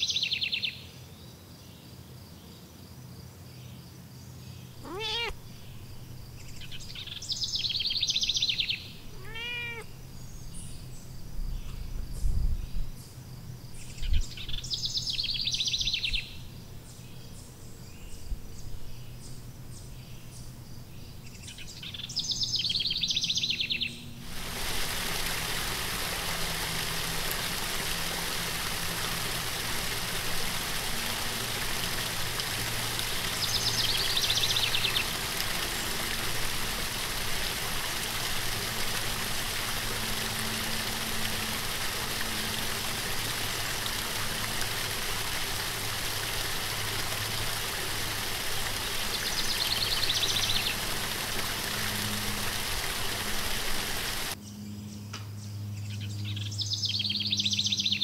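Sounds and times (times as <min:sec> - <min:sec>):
bird trilling call: 0:04.8 - 0:05.7, 0:06.6 - 0:10.0
stream rushing over rocks: 0:24.2 - 0:54.4.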